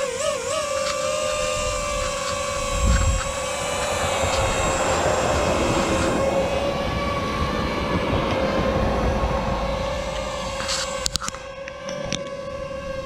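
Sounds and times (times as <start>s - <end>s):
drone propellers whining: 0.0s - 13.0s
low rumble: 1.4s - 11.6s.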